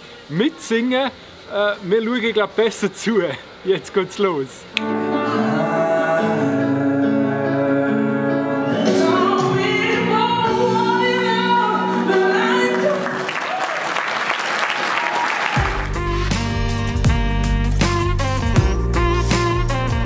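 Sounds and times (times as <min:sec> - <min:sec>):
person singing with music: 0:04.8 - 0:13.3
audience applause: 0:11.9 - 0:16.2
bass-heavy music track: 0:15.6 - 0:20.0.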